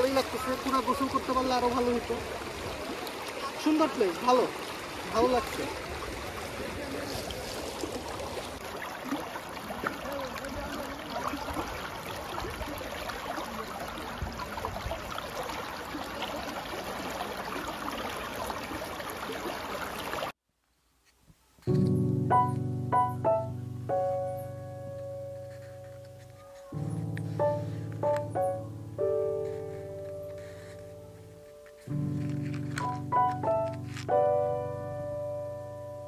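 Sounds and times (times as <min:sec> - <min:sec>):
river water rushing over stones: 0:00.0 - 0:20.3
piano music: 0:21.7 - 0:36.0.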